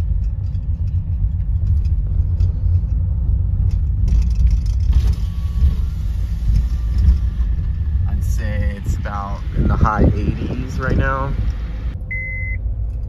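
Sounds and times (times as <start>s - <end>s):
light rattles: 0.0s - 5.2s
car engine and tyres rumbling: 0.0s - 13.0s.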